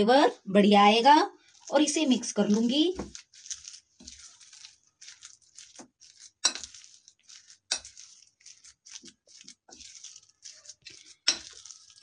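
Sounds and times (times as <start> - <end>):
spoon stirring thick mash: 0.0 - 12.0
spoon clinking on glass: 6.4 - 6.7, 11.2 - 11.7.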